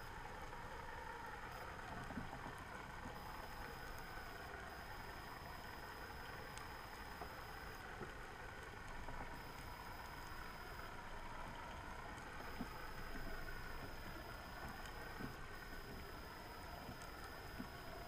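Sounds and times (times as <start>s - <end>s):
underwater noise: 1.3s - 18.0s
faint clicks: 6.3s - 8.2s, 12.2s - 18.0s
thin high whine: 9.4s - 11.0s.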